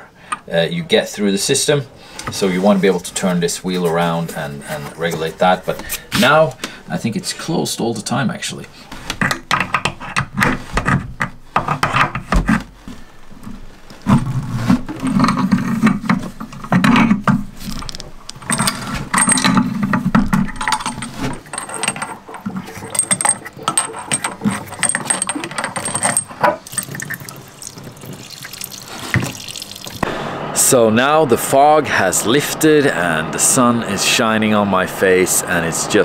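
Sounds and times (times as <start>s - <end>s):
water running: 19.8s - 26.0s, 26.6s - 36.0s.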